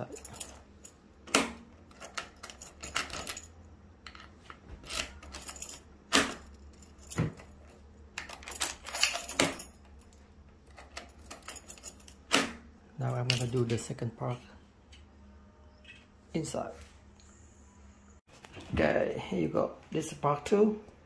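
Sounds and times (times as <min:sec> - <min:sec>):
keys jangling on a ring: 0:00.0 - 0:01.0, 0:01.9 - 0:03.5, 0:04.8 - 0:12.2.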